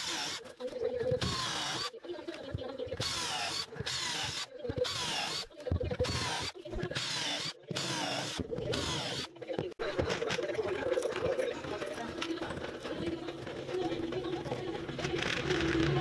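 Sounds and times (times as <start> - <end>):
cordless drill boring plywood: 0.0 - 0.4, 1.2 - 1.9, 3.0 - 9.3.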